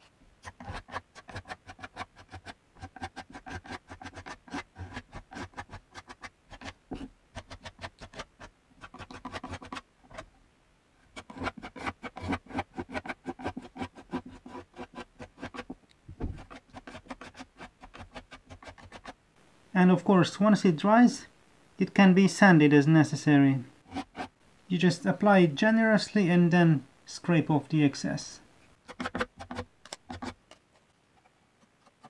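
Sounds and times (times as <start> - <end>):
putty knife scraping wood: 0.4 - 10.3, 11.1 - 19.2, 23.8 - 24.3, 28.8 - 32.0.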